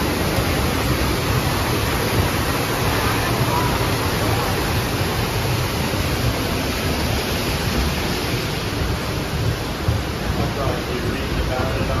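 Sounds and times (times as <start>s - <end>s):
water rushing: 0.0s - 12.0s.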